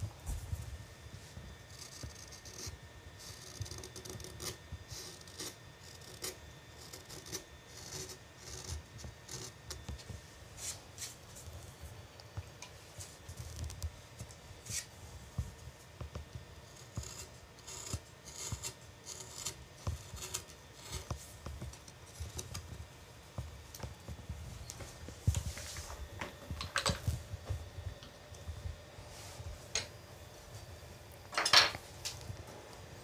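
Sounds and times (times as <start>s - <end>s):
carving gouge cutting wood: 1.7s - 9.9s, 16.7s - 21.2s.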